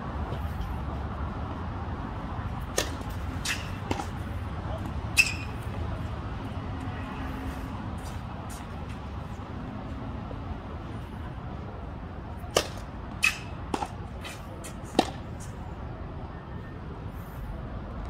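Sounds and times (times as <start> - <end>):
racket hitting tennis ball: 2.6 - 5.8, 12.4 - 15.5.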